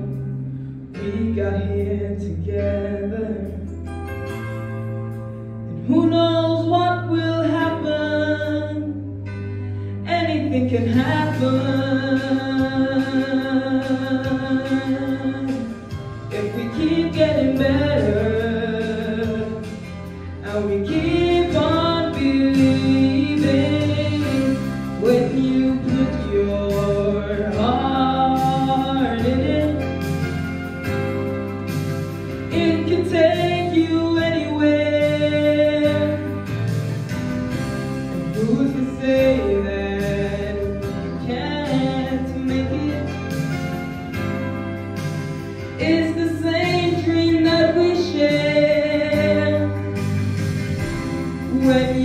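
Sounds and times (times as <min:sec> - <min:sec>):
young man singing: 0:00.0 - 0:03.8, 0:10.1 - 0:30.3, 0:32.5 - 0:36.3, 0:38.3 - 0:43.5, 0:45.8 - 0:49.8, 0:50.9 - 0:52.0
held bass and chord accompaniment: 0:00.0 - 0:52.0.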